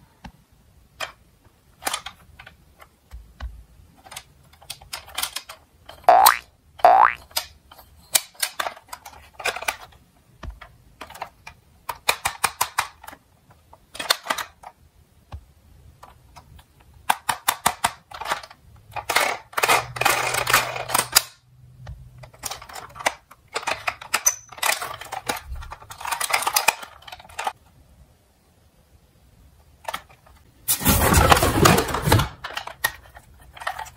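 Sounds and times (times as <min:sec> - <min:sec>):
plastic toy clicking and rattling: 0:01.0 - 0:02.9, 0:04.0 - 0:14.8, 0:16.0 - 0:21.4, 0:22.2 - 0:27.6, 0:29.8 - 0:30.5, 0:31.5 - 0:33.9
scraping and rustling in box: 0:30.6 - 0:33.9.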